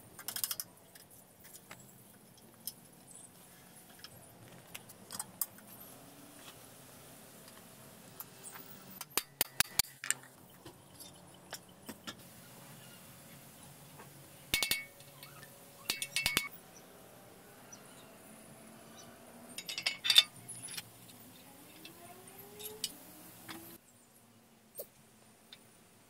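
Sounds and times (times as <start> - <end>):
light metallic clinks and taps: 14.5 - 16.5, 19.6 - 20.9.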